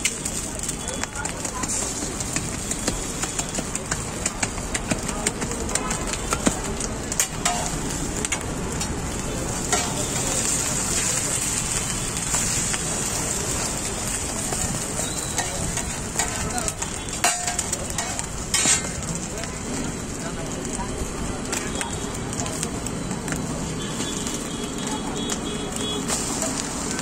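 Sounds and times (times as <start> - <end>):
egg sizzling on a griddle: 0.0 - 27.0
metal utensils scraping iron: 7.1 - 8.4, 9.6 - 11.1, 15.2 - 16.5, 17.1 - 19.1.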